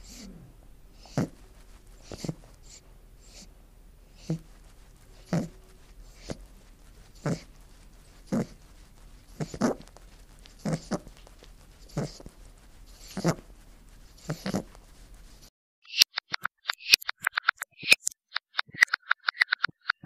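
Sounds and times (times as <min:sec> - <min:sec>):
rabbit chewing grass: 0:00.0 - 0:15.5.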